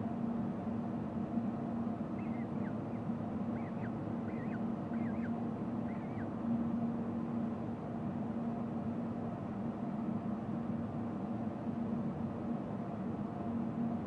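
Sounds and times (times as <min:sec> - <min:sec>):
mechanical hum: 0:00.0 - 0:14.0
faint short bird chirps: 0:02.2 - 0:02.8, 0:03.5 - 0:06.3.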